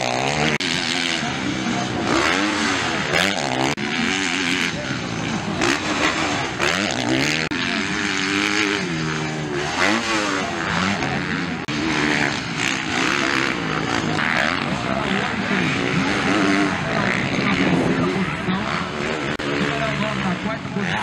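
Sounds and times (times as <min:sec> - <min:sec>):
motocross bike engines revving: 0:00.0 - 0:21.0.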